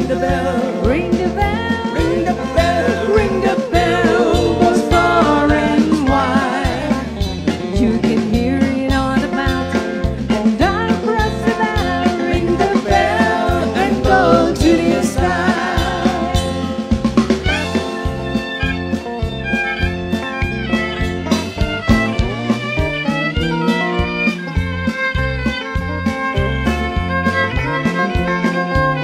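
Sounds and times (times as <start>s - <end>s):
person singing: 0.0s - 16.6s
drum kit beat: 0.0s - 29.0s
electric bass: 0.0s - 29.0s.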